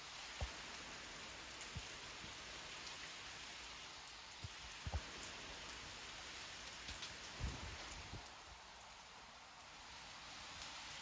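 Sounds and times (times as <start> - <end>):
rain falling steadily: 0.0 - 11.0.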